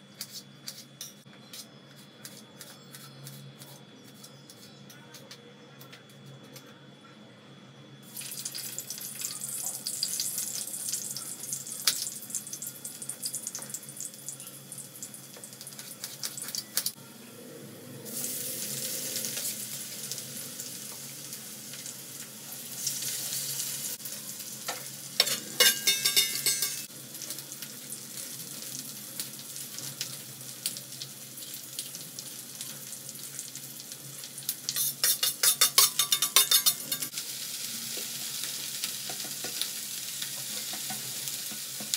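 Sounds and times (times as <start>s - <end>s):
potatoes sizzling in oil: 8.0s - 17.0s, 18.0s - 41.9s.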